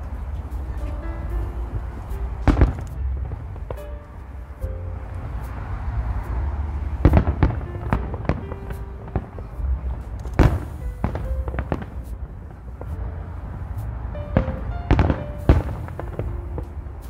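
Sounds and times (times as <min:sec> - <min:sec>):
steady low rumble: 0:00.0 - 0:17.0
firework shells bursting: 0:10.1 - 0:13.0.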